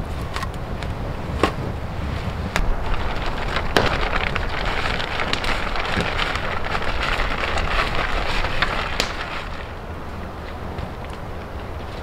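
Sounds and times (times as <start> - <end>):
campfire crackling and snapping: 2.0 - 12.0
sharp fire pop: 2.5 - 6.1.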